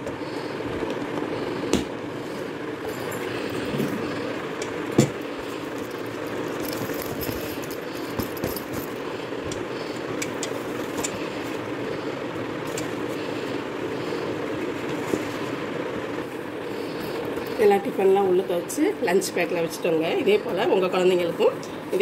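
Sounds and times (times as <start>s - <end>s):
steady background noise: 0.0s - 22.0s
fabric bag rustling: 5.2s - 9.3s.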